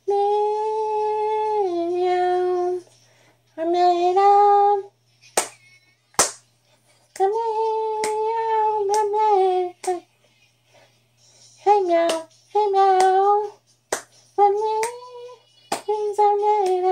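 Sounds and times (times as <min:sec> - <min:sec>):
woman singing meow syllables: 0:00.0 - 0:02.8, 0:14.4 - 0:16.9.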